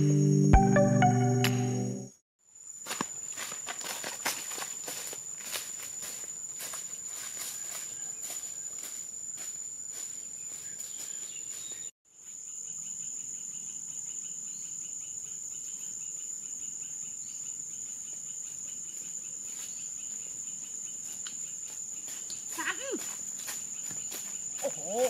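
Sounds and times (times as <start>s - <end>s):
footsteps crunching on dry leaves: 2.8s - 11.9s, 21.1s - 25.0s
high-pitched insect drone: 12.2s - 25.0s.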